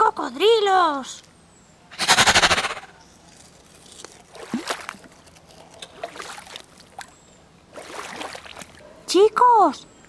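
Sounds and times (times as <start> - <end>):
puddle water splashing: 4.3 - 5.2, 5.8 - 8.8.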